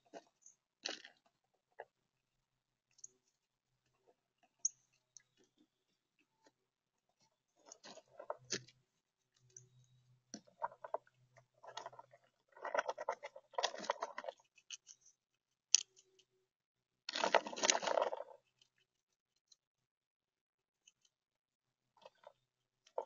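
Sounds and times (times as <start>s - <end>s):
acorns clicking and rattling: 17.1s - 18.4s.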